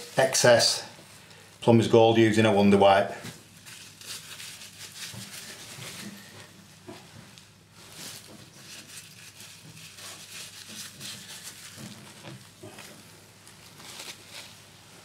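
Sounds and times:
wipe rubbing on plastic: 3.6s - 6.5s, 7.8s - 15.0s.

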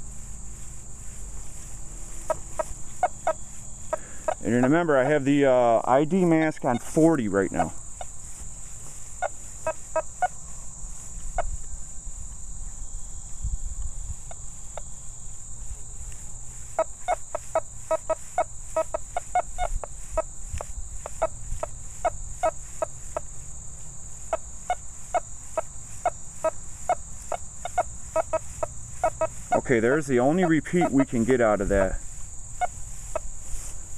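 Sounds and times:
metal detector chirps: 0.0s - 10.4s, 26.0s - 32.0s.

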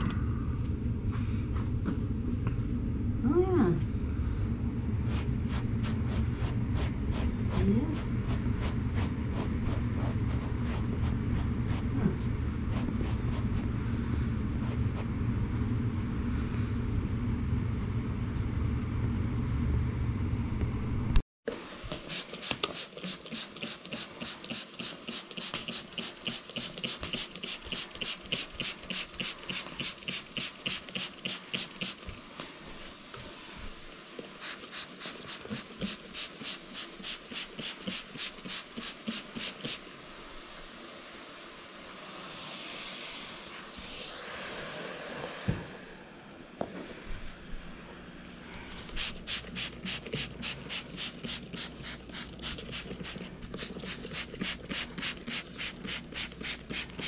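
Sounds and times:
low machine rumble: 0.0s - 21.2s
spray bottle spritzing: 22.0s - 32.1s, 34.4s - 39.8s, 48.9s - 57.0s.

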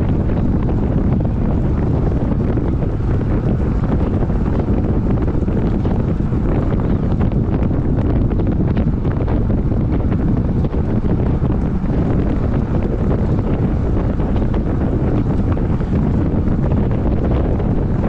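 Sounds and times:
wind rumble on microphone: 0.0s - 18.0s.

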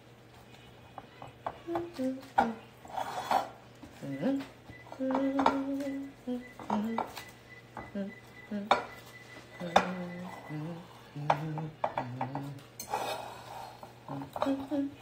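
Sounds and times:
woman humming: 1.6s - 2.8s, 4.0s - 7.2s, 7.8s - 12.6s, 14.0s - 15.0s.

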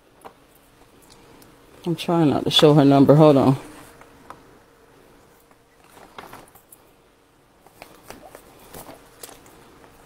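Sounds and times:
paper rustling: 5.8s - 6.8s, 7.6s - 10.0s.

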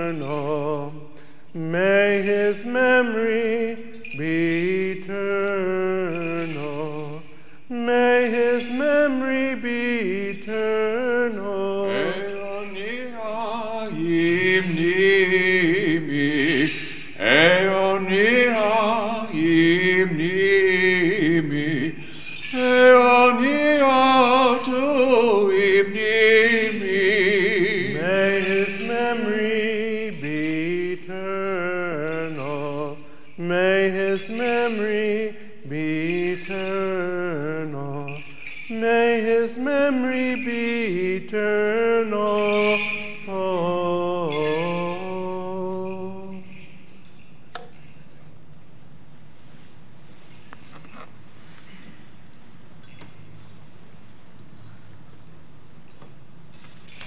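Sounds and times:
men chanting a hymn: 11.5s - 13.0s.

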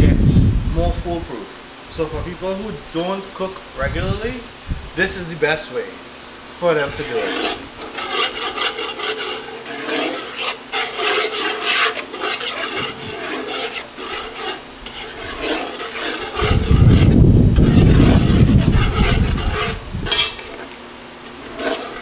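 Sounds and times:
spoon scraping a pot: 6.7s - 22.0s.

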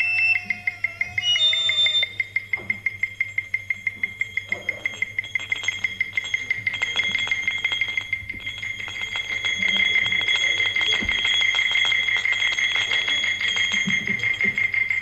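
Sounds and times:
wavering whistle-like tone: 0.0s - 15.0s
small metal bell struck rapidly: 3.2s - 15.0s.

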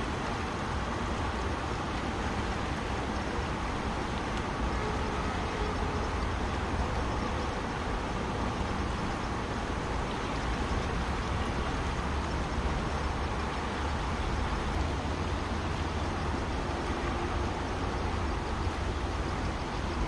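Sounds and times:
river rushing: 0.0s - 20.0s.

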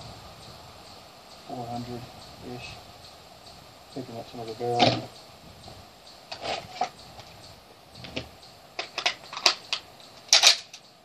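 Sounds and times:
rifle handling rustles and knocks: 4.7s - 5.1s, 6.3s - 7.4s, 8.0s - 10.8s.

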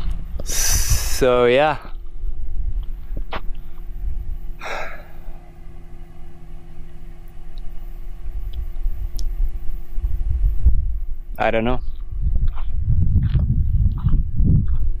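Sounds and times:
faint hum: 0.0s - 15.0s
steady low rumble: 0.0s - 15.0s
person sighing heavily: 4.6s - 5.1s.

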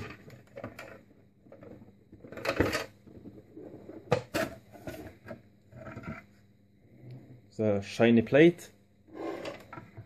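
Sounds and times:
plastic scraping on plastic: 0.0s - 6.3s, 9.1s - 10.0s.

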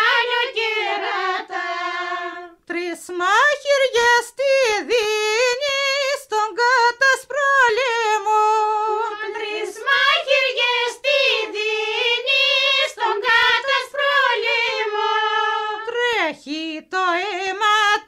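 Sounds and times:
woman singing unaccompanied: 0.0s - 18.0s.

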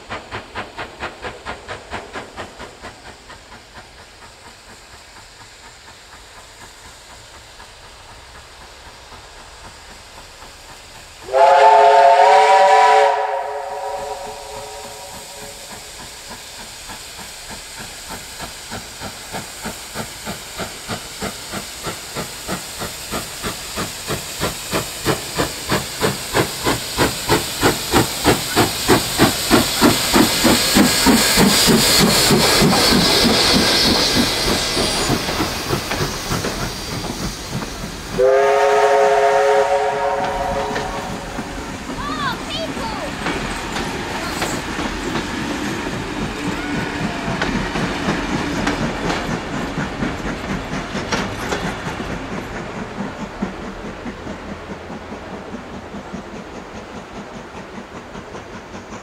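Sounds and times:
hiss of steam: 0.0s - 59.0s
steam locomotive exhaust beats: 0.0s - 59.0s
steam locomotive chime whistle: 11.2s - 15.8s, 38.2s - 41.5s.

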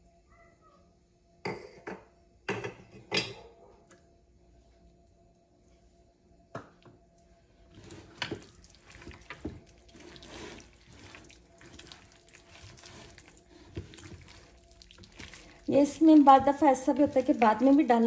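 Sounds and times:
hand squelching wet chicken: 7.8s - 18.0s.

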